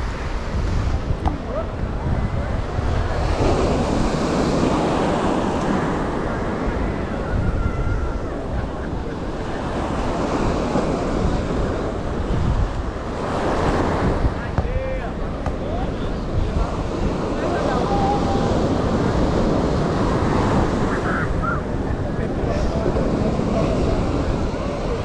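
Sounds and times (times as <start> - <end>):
ocean surf breaking: 0.0 - 25.0
wind buffeting microphone: 0.0 - 25.0.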